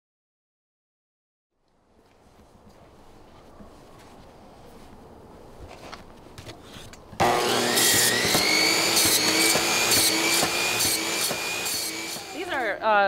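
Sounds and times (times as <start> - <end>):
chop saw motor whine: 7.2 - 12.7
saw blade cutting through fish: 7.2 - 12.7.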